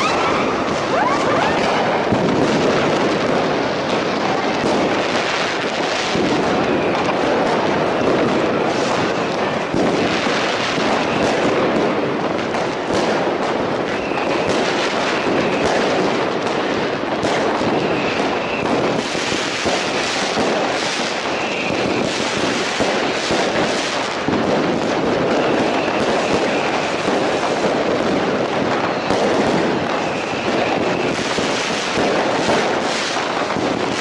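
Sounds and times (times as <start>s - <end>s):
fireworks bangs and crackles: 0.0s - 34.0s.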